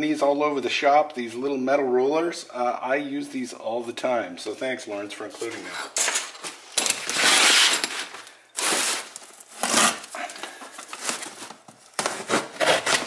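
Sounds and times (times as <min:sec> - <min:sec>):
packing paper crinkling: 0:06.4 - 0:13.0
cardboard box being opened: 0:07.2 - 0:13.0.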